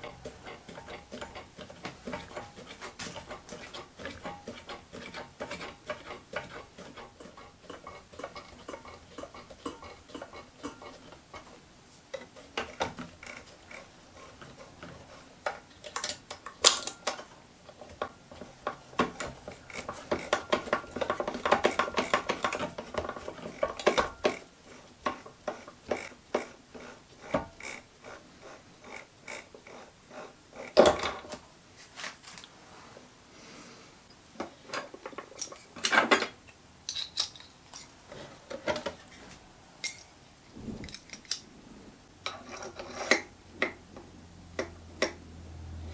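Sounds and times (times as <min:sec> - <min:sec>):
metal clinks and knocks on lathe: 0:14.4 - 0:26.5.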